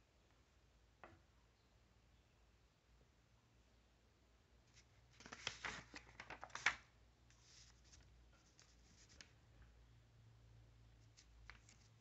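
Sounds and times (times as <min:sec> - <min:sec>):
paper rustling and crinkling: 0:04.7 - 0:09.4, 0:11.1 - 0:12.0.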